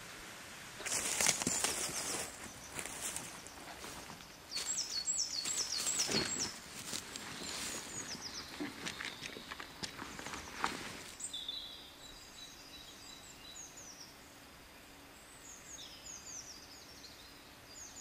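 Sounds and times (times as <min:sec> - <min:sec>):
footsteps in dry leaves: 0:00.8 - 0:11.2
bird singing: 0:00.8 - 0:18.0.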